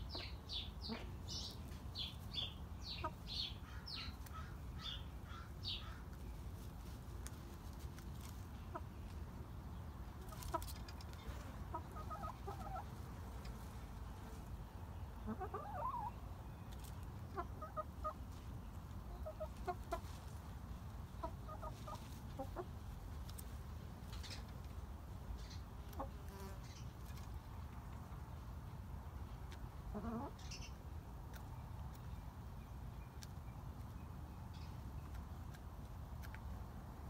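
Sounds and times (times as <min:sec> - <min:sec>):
hens clucking softly: 0:00.0 - 0:01.2, 0:10.2 - 0:20.3, 0:21.0 - 0:23.4, 0:29.5 - 0:30.6.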